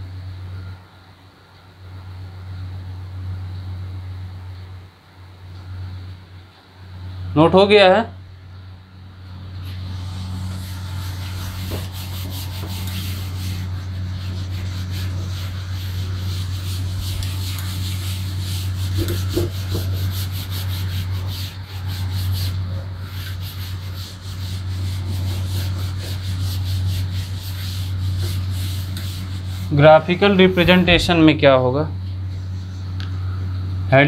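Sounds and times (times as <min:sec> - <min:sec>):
steady low hum: 0:00.0 - 0:34.0
duster scrubbing chalkboard: 0:09.7 - 0:31.2.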